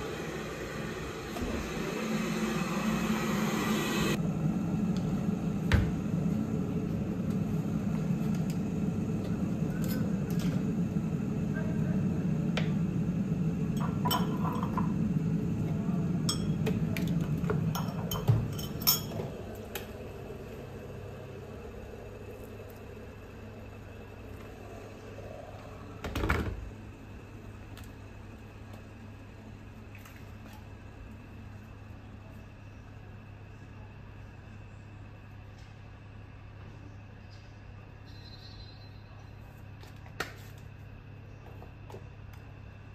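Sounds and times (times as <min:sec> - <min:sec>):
electric kettle heating water: 0:00.0 - 0:32.1.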